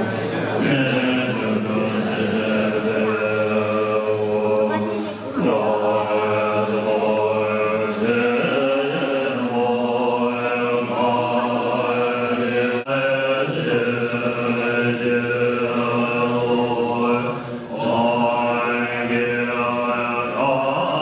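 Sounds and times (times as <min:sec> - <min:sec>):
monks chanting in unison: 0:00.0 - 0:21.0.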